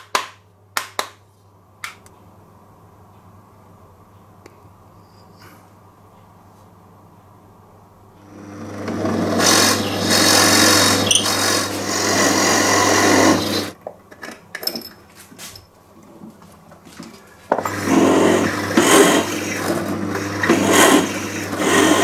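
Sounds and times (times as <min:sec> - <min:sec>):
drill press motor humming: 0:08.2 - 0:13.8, 0:17.6 - 0:22.0
drill bit rasping into wood: 0:08.6 - 0:13.8, 0:17.6 - 0:22.0.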